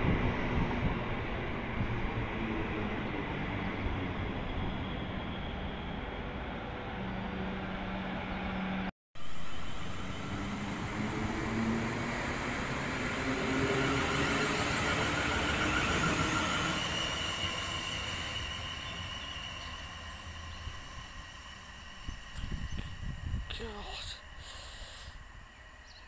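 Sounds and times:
train wheels on rails: 8.0s - 26.0s.

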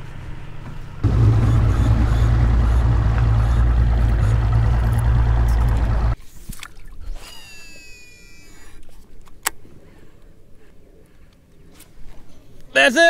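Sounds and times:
boat motor drone: 1.0s - 6.2s
rushing water: 1.0s - 6.2s.

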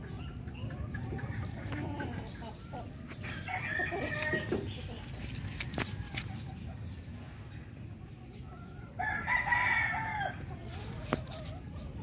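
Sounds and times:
rooster crowing: 3.2s - 4.6s, 9.0s - 10.5s.

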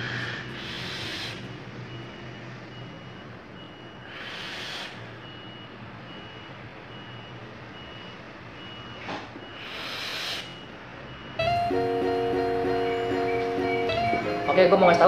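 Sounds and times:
short high electronic beeps: 11.4s - 15.0s.

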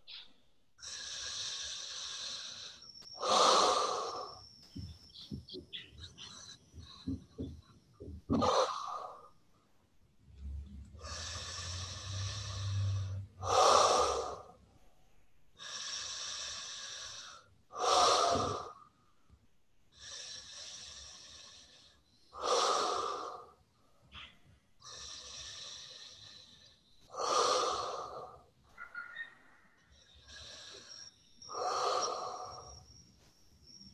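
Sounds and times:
person breathing through the mouth: 0.8s - 9.3s, 10.9s - 14.6s, 15.6s - 18.8s, 19.9s - 23.6s, 24.8s - 28.5s, 29.9s - 33.0s.

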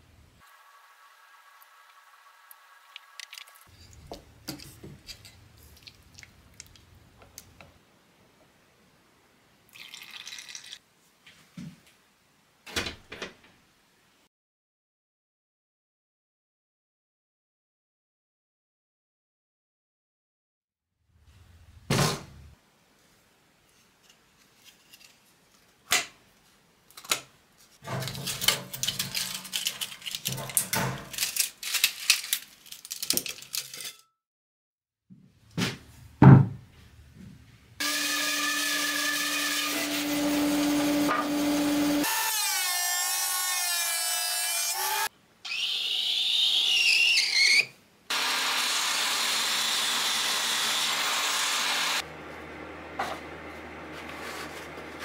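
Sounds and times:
table saw cutting wood: 37.8s - 52.0s
wood scraping on bench: 53.9s - 55.0s.

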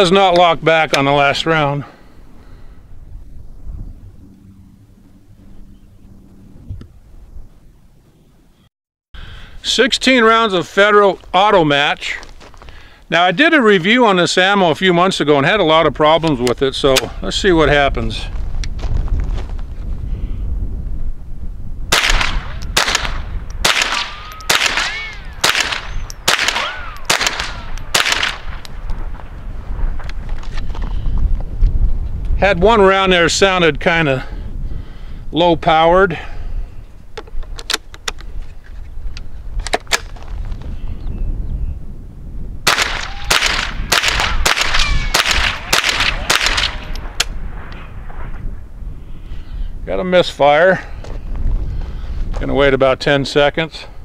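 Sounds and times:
rifle shots: 21.9s - 29.1s, 42.6s - 48.2s.

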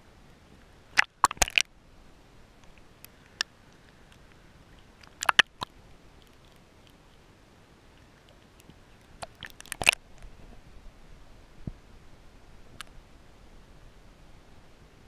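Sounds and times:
faint muffled hiss: 0.0s - 15.0s
water splashing against camera housing: 1.0s - 1.7s, 5.0s - 6.4s, 9.2s - 10.3s.

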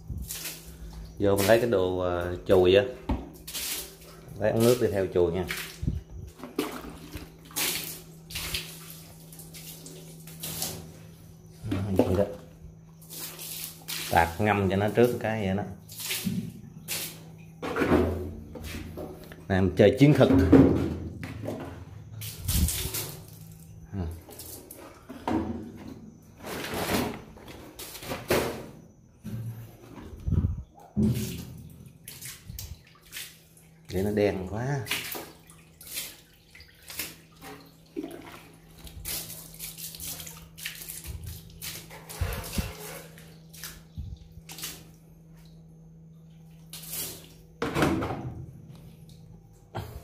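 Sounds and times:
water splashing onto wooden boards: 0.0s - 10.9s, 13.0s - 17.3s, 22.2s - 24.8s, 31.0s - 45.1s
steady low hum: 0.0s - 28.1s, 28.7s - 50.0s
water splashing over engine: 31.0s - 45.0s.

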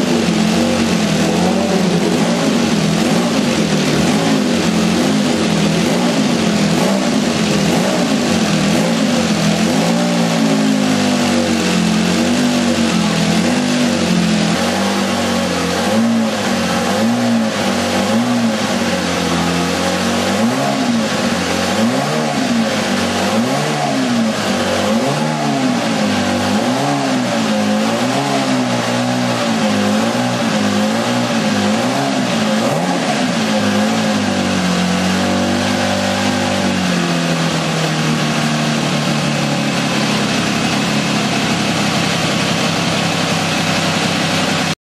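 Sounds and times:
racing car engine revving: 0.0s - 44.8s.

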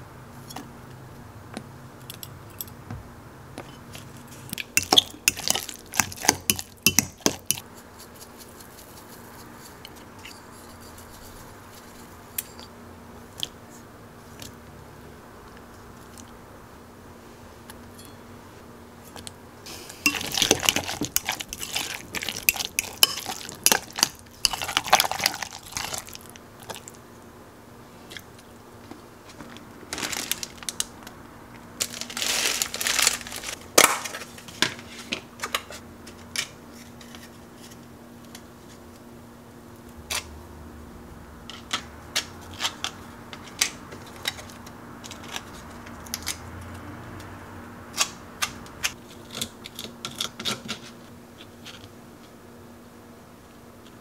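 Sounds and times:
spoon scraping a glass jug: 6.5s - 12.7s
plastic wrapper crinkling: 29.9s - 30.9s, 31.8s - 34.4s.

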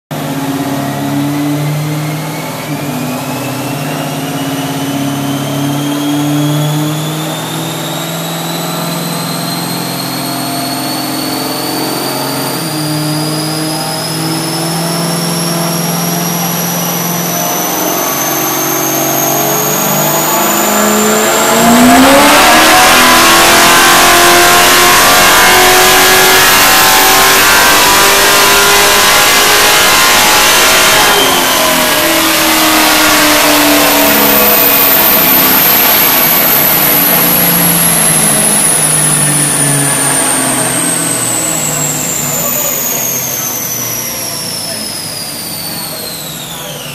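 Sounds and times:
high whine rising in pitch: 0.1s - 46.9s
race car engine running: 0.1s - 46.9s.

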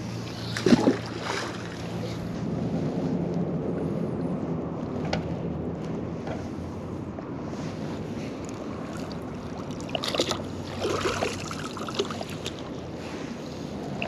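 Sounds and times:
low rush of river water: 0.0s - 3.0s, 7.5s - 14.0s
water splashing and dripping: 8.9s - 12.7s.

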